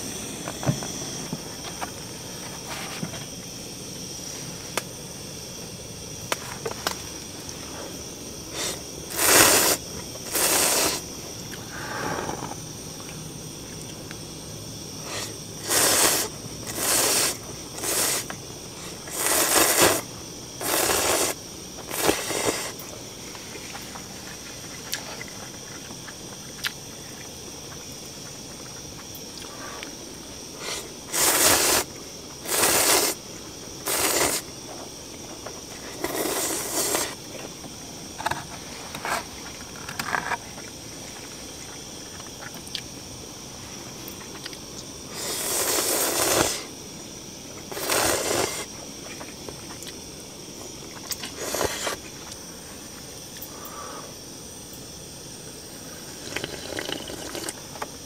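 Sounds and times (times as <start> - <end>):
noodles slurped: 8.6 - 11.0, 15.2 - 22.8, 30.6 - 33.2, 33.8 - 34.4, 35.9 - 37.2, 45.2 - 46.7, 47.7 - 48.7, 51.0 - 52.0, 56.2 - 57.6.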